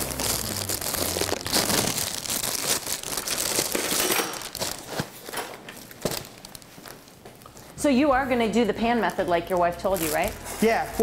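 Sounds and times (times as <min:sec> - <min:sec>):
cereal crunching by hand: 0:00.0 - 0:04.9
plastic bag crinkling: 0:00.0 - 0:07.8, 0:09.0 - 0:11.0.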